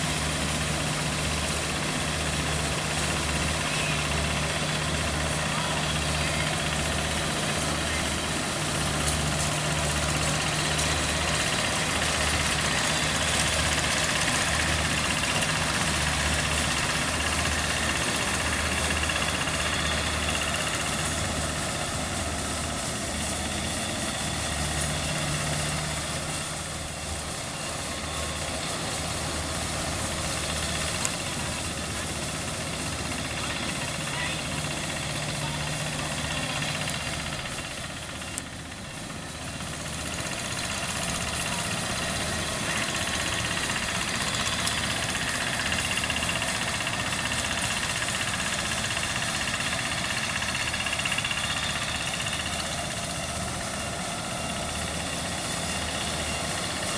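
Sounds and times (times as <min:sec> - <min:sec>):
diesel engine running: 0:00.0 - 0:56.9.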